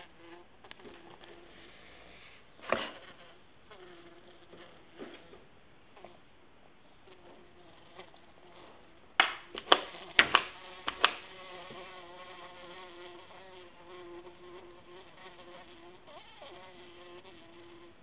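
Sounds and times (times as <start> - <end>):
bumblebee buzzing: 0.0 - 1.6, 2.7 - 5.4, 7.0 - 18.0
sharp knocks: 9.2 - 11.2.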